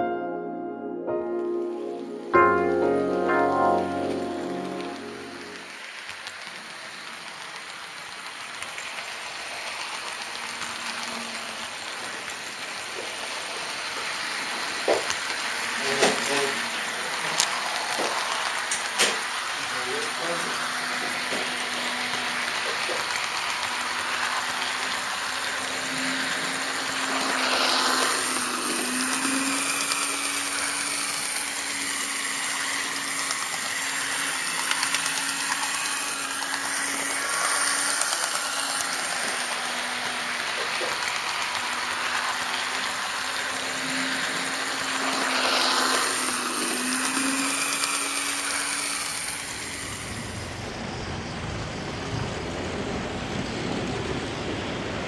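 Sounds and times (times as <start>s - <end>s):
model train whirring on rails: 2.0s - 55.0s.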